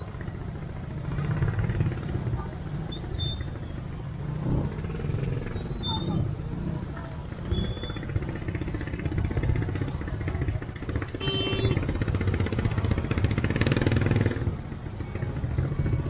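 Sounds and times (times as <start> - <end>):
motor scooter engines idling: 0.0 - 16.0.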